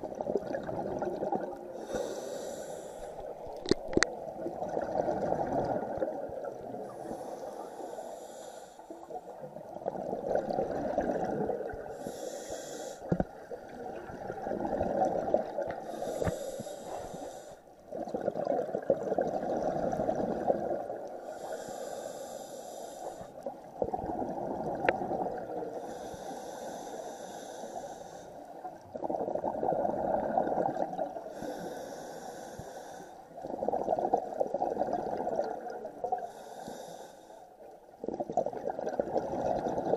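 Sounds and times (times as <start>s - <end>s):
gurgling exhaled bubbles: 0.0s - 2.0s, 3.3s - 7.3s, 9.2s - 12.0s, 13.1s - 16.4s, 17.9s - 21.4s, 23.5s - 25.8s, 28.7s - 31.4s, 33.4s - 36.3s, 38.0s - 39.9s
regulator hissing inhale: 1.8s - 3.4s, 6.8s - 9.2s, 11.9s - 13.2s, 15.8s - 17.7s, 21.2s - 23.5s, 25.7s - 28.5s, 31.3s - 33.3s, 36.2s - 37.5s.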